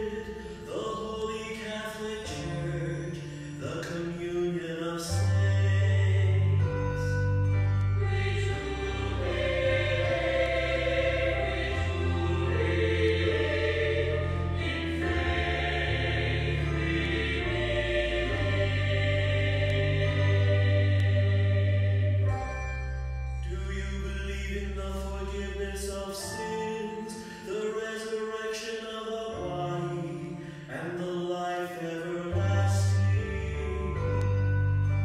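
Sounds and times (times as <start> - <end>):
low held accompanying notes: 0.0 - 27.8
choir singing: 8.0 - 22.6.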